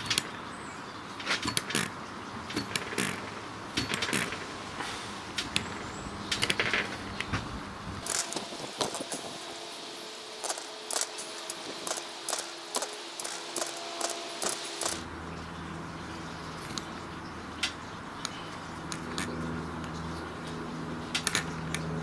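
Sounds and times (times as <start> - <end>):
light metallic engine clicks: 16.5 - 22.0.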